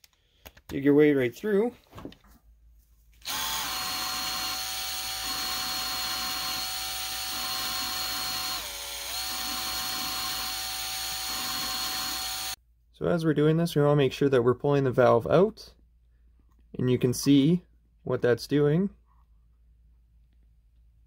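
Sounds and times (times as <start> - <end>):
power drill motor whine: 3.2 - 12.6.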